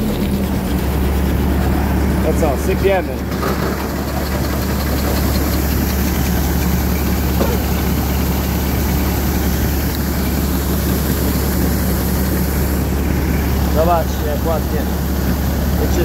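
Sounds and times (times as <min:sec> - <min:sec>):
combine harvester running: 0:00.0 - 0:16.0
unloading auger emptying grain: 0:00.0 - 0:16.0.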